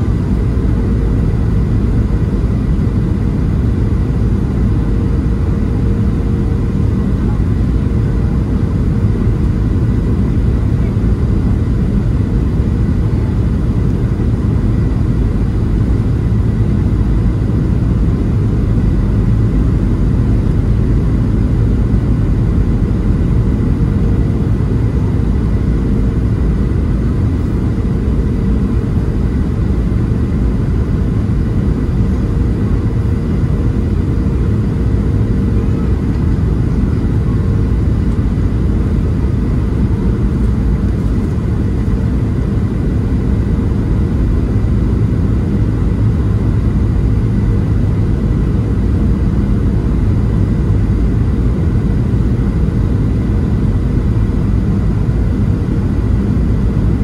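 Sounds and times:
faint steady hum: 0.0 - 57.0
jet engine rumble: 0.0 - 57.0.

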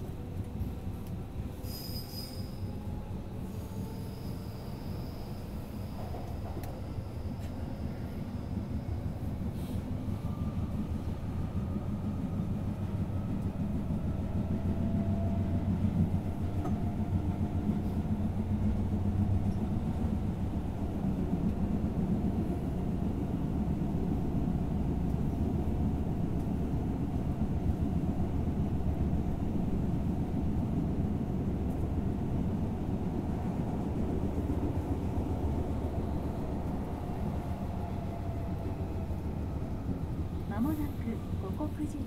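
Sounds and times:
rumble of wheels on rails: 0.0 - 42.0.

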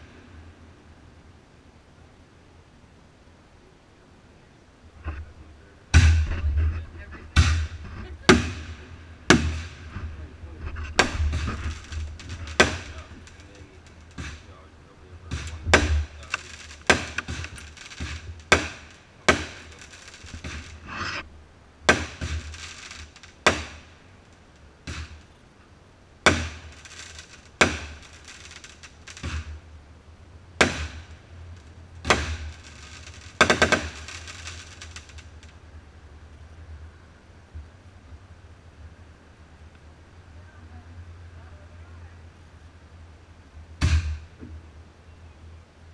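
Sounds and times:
crackling firework reports: 3.0 - 36.3, 43.8 - 44.4
firework bangs with echo: 5.9 - 6.6, 7.2 - 14.6, 15.2 - 21.0, 21.9 - 23.9, 24.8 - 25.2, 26.2 - 29.6, 30.6 - 31.2, 32.0 - 35.2.

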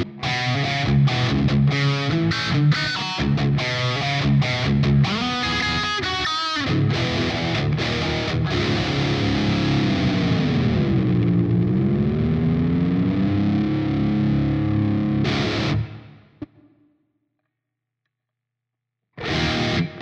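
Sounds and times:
distorted electric guitar chord: 6.6 - 16.2, 19.2 - 20.0.

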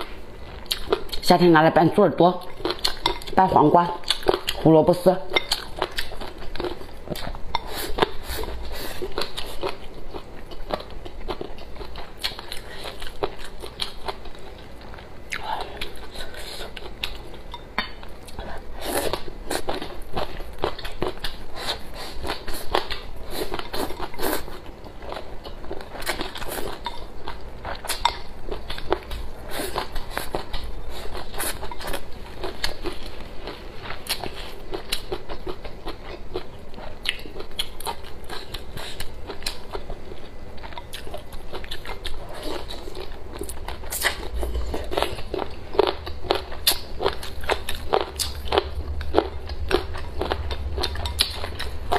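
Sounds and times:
person chewing crunchily: 0.0 - 1.2, 2.4 - 3.4, 4.0 - 4.7, 5.3 - 51.9.

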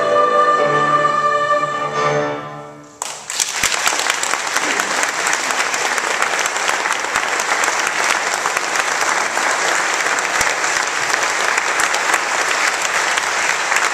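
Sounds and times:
audience applauding: 3.0 - 13.9.

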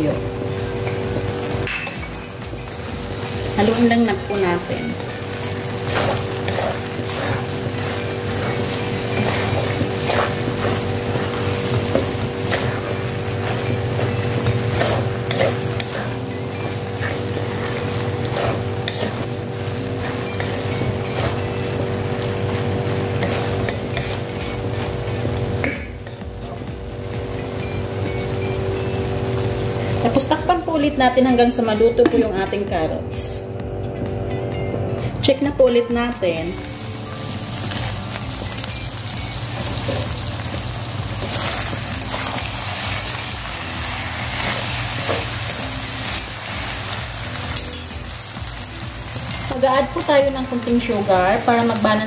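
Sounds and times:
food sizzling in a wok: 0.0 - 31.2, 36.3 - 52.0
wooden spatula scraping a wok: 3.0 - 26.7, 41.2 - 47.6.

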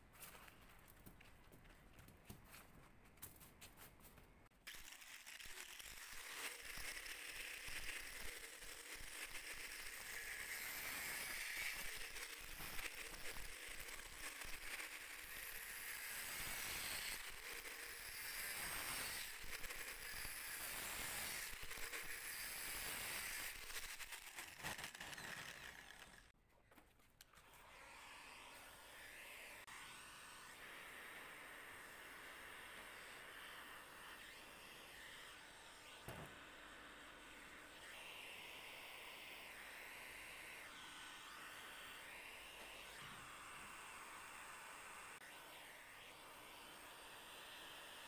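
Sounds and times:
angle grinder grinding plastic: 4.6 - 26.4.

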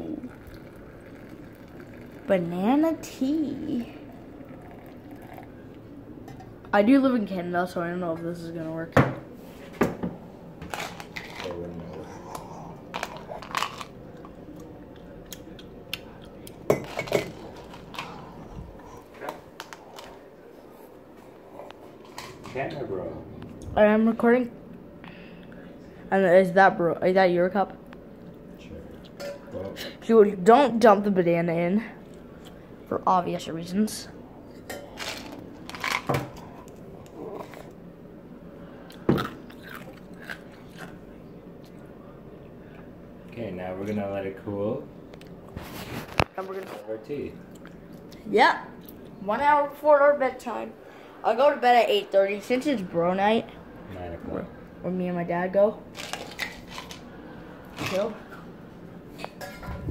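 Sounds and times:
kitchen utensils rustling and clinking: 16.7 - 18.2, 34.6 - 36.4, 59.2 - 59.9.

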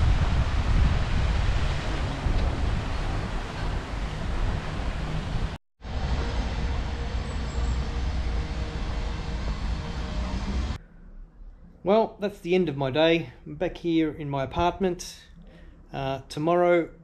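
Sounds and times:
traffic noise: 0.0 - 10.8
wind rumbling on microphone: 0.0 - 10.8.

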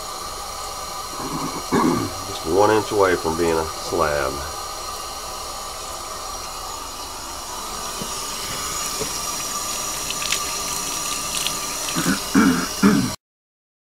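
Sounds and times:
tap water pouring into tub: 7.8 - 12.2.

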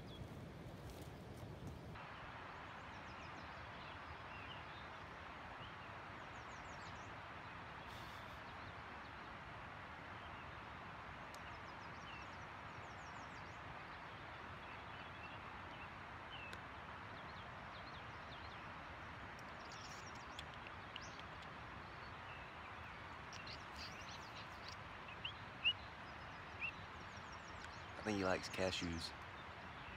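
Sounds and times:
faint rushing background noise: 0.0 - 29.9
high bird chirps: 23.3 - 25.8.

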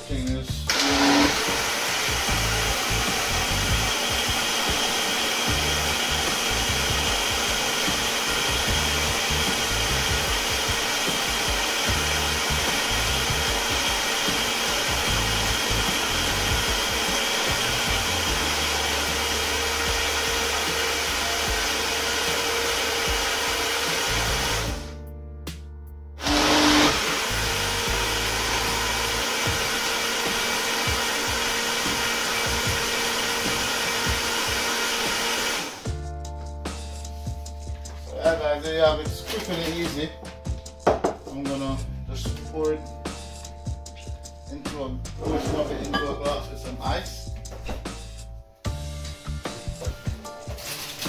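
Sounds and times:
blender motor running: 0.7 - 25.0, 26.2 - 36.0.

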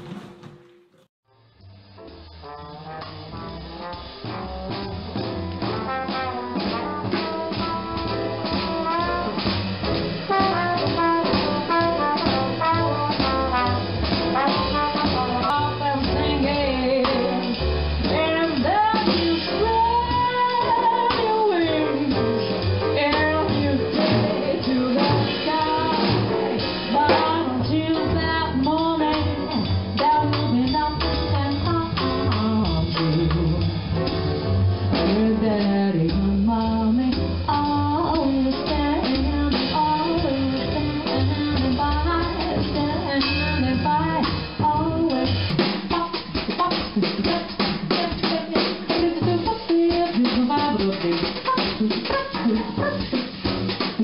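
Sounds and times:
drum kit beat: 0.0 - 1.1, 1.7 - 54.0
jazz music with brass: 0.0 - 54.0
person singing: 51.8 - 53.1.

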